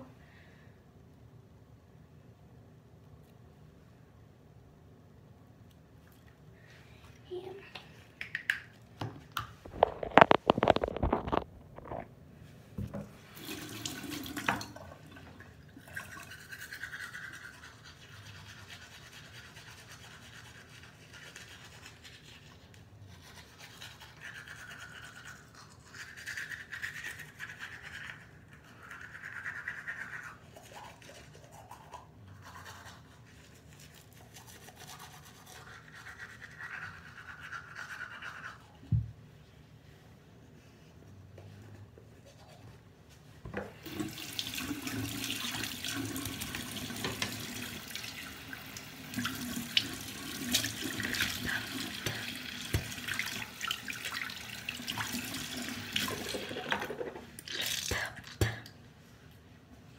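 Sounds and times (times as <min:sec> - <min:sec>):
toothbrush scrubbing teeth: 0:15.8 - 0:38.9, 0:42.2 - 0:42.8, 0:49.2 - 0:58.6.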